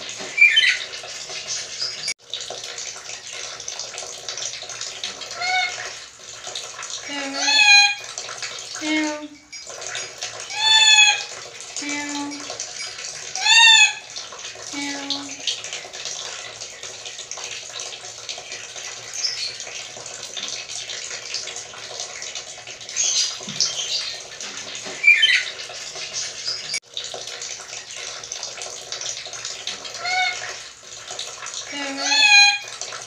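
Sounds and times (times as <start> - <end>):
parrot meow-like call: 5.4 - 5.8, 10.5 - 11.3, 13.4 - 14.0, 30.0 - 30.5, 31.8 - 32.6.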